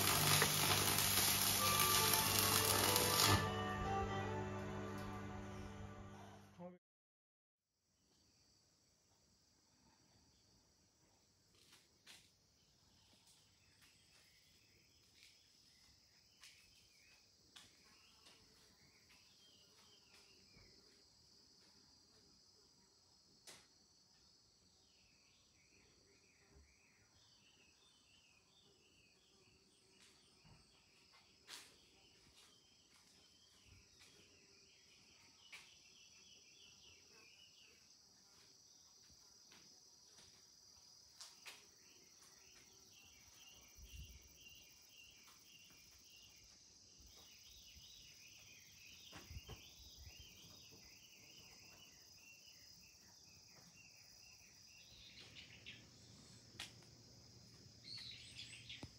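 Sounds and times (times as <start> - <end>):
insects trilling: 0.0 - 3.4, 32.1 - 58.9.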